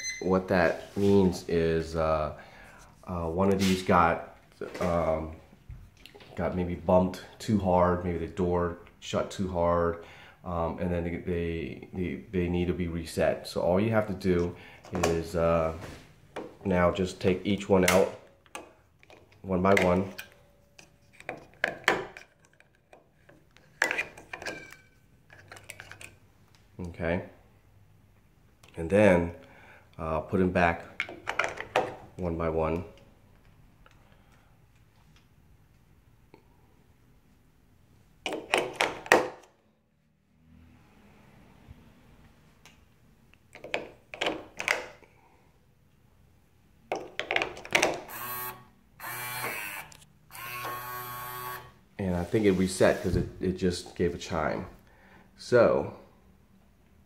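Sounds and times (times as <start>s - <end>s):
electronic lock chime tones: 0.0s - 0.3s.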